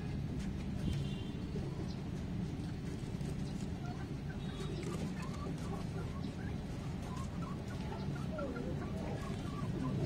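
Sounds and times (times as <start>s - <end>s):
chickens clucking: 3.2s - 10.0s.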